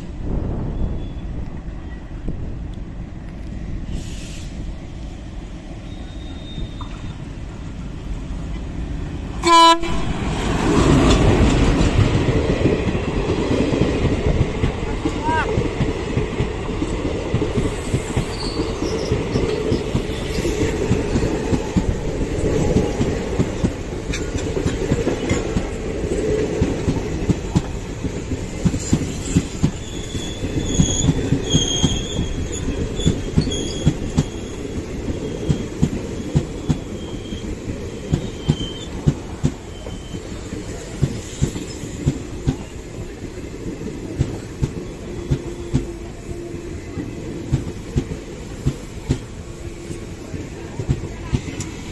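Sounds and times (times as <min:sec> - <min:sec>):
high-pitched wheel squeals: 0:05.8 - 0:07.3, 0:18.1 - 0:19.5, 0:29.1 - 0:40.4
train wheels clattering on rails: 0:10.2 - 0:51.9.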